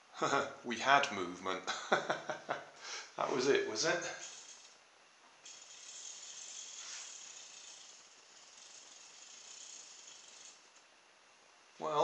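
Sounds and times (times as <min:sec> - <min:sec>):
toy car motor whirring: 0:04.0 - 0:04.8, 0:05.4 - 0:10.9.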